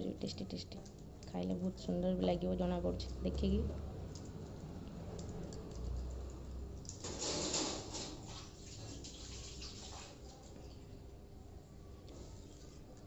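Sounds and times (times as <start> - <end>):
light clicks and crackles: 4.0 - 8.2.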